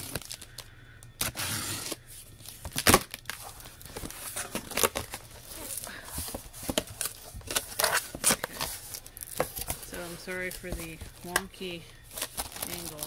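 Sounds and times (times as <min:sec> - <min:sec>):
tape tearing: 0:01.2 - 0:05.9, 0:06.6 - 0:10.6.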